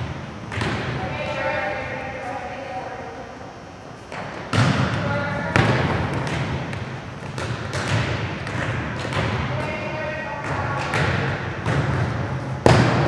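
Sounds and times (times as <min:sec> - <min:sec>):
volleyballs struck and bouncing: 0:00.0 - 0:01.4, 0:04.1 - 0:13.0
players' voices: 0:09.4 - 0:12.8.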